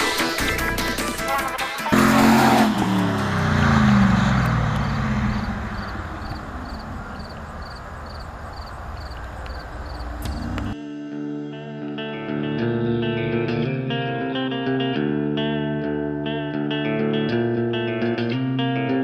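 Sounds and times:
car engine accelerating away: 0:01.9 - 0:10.8.

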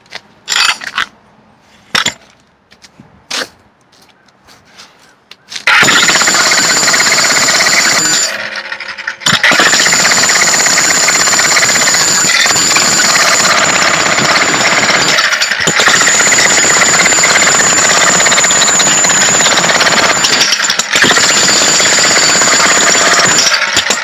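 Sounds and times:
jackhammer breaking concrete: 0:05.7 - 0:24.0
jackhammer motor hum: 0:05.7 - 0:24.0.

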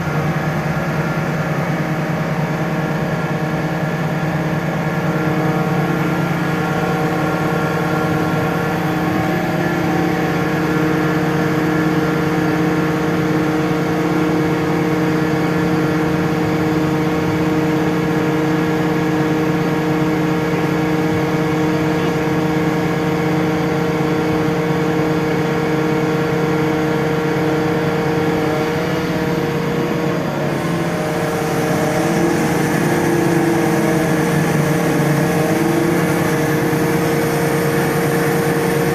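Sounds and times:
diesel engine running: 0:00.0 - 0:38.9.

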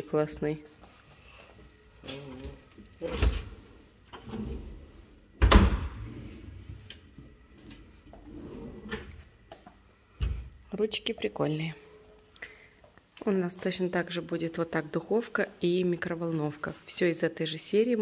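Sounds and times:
kitchen drawer opening and shutting: 0:02.1 - 0:09.3.

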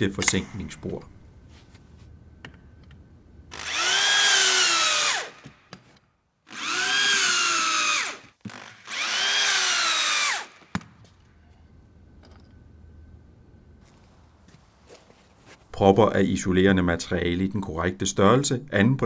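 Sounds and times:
electric drill whining: 0:03.5 - 0:05.6, 0:06.5 - 0:10.8.

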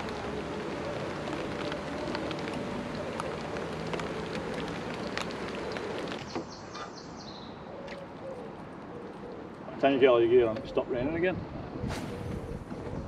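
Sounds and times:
rain pattering on water: 0:00.0 - 0:06.6.

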